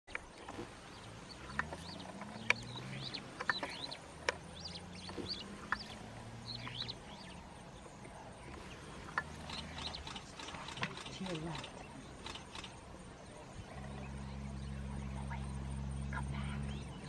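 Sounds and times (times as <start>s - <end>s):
birds chirping: 0.1s - 17.0s
low steady hum: 0.1s - 17.0s
sharp clicks: 8.5s - 12.8s.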